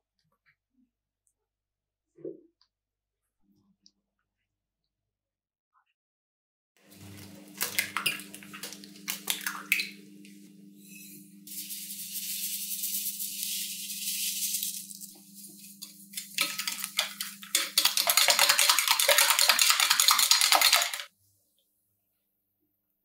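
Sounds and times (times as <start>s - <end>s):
sugar pouring into bowl: 11.2s - 21.1s
whisk beating in glass bowl: 11.5s - 21.1s.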